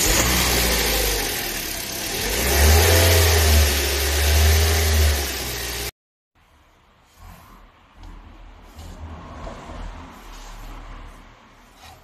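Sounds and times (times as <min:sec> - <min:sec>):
car engine running and revving: 0:00.0 - 0:05.9.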